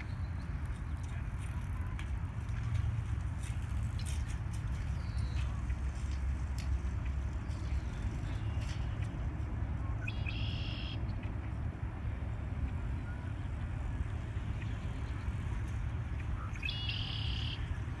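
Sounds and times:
steady low rumble: 0.0s - 16.9s
blackbird singing buzzy trill: 10.0s - 11.0s, 16.5s - 17.6s.

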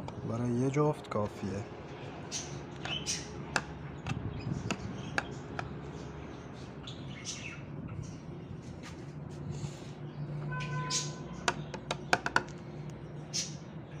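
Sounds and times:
cage birds chirping: 0.0s - 14.0s.

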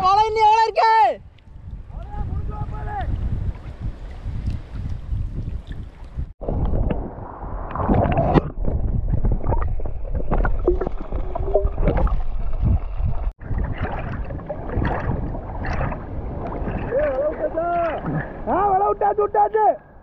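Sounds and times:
seawater sloshing and splashing: 3.3s - 18.6s
muffled underwater bubbling: 5.7s - 18.5s.

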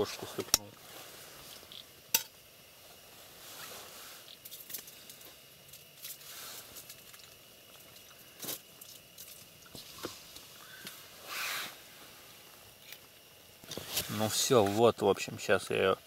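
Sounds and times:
faint rustling handling noise: 2.8s - 15.1s.

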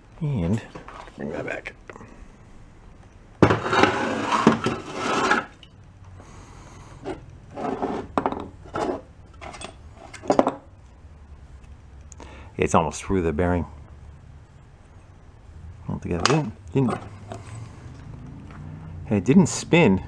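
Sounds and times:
metal scraping on concrete: 3.4s - 5.8s, 7.0s - 10.4s
metal parts clinking: 8.7s - 10.6s.

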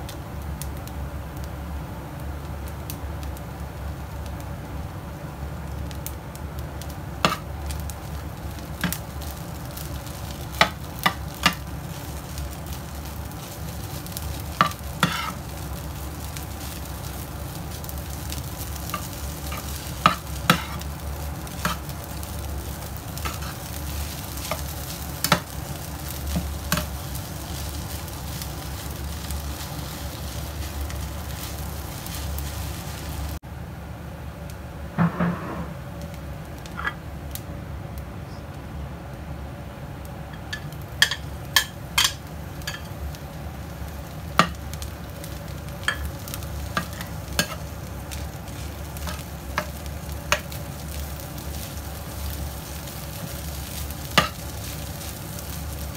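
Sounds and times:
rice frying in a pan: 0.0s - 55.9s
metal spatula scraping a pan: 14.6s - 15.4s.

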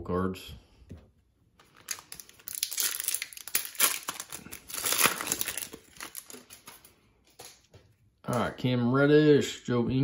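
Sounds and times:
foil wrapper crinkling torn open: 1.6s - 6.9s.

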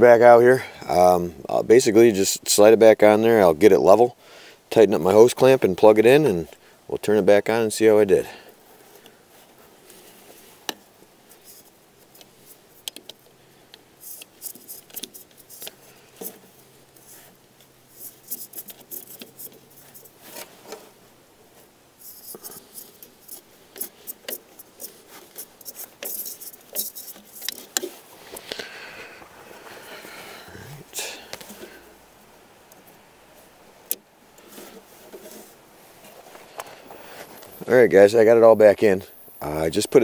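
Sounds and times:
metal and plastic parts clicking: 12.1s - 16.4s, 18.0s - 20.5s, 22.0s - 27.9s.

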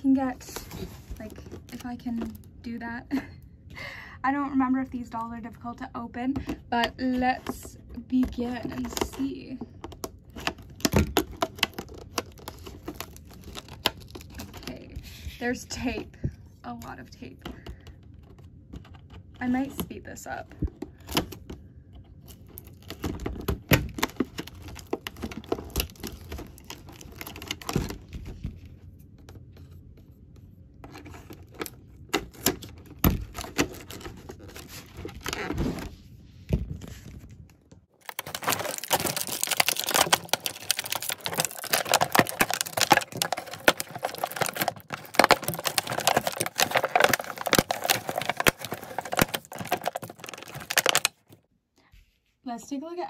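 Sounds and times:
plastic packaging crinkling: 10.0s - 14.9s, 22.2s - 28.5s, 30.8s - 35.6s, 37.9s - 51.4s.

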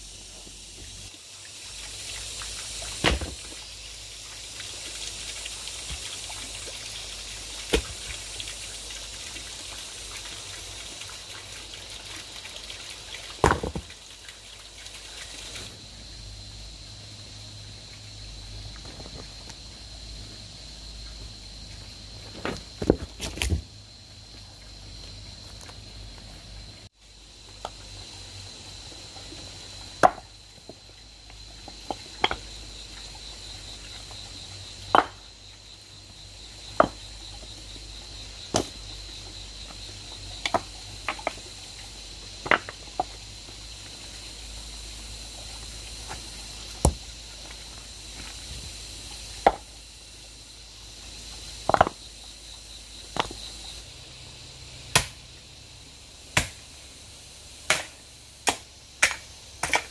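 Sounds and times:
blade chopping bamboo: 3.0s - 3.5s, 7.7s - 8.1s, 54.9s - 55.2s, 56.4s - 56.6s, 57.7s - 59.9s.

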